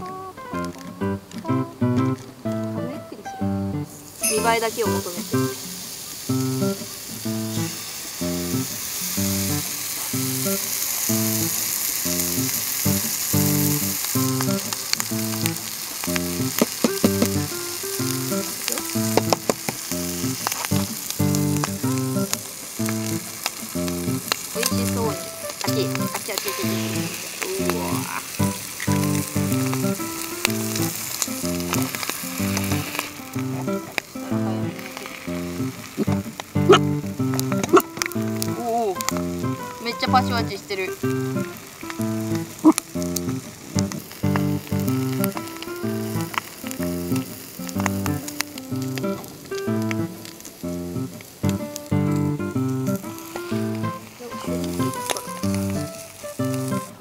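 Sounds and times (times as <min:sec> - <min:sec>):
light plucked background music: 0:00.0 - 0:57.0
bacon sizzling in a pan: 0:03.7 - 0:57.0
sharp clicks: 0:18.3 - 0:24.6.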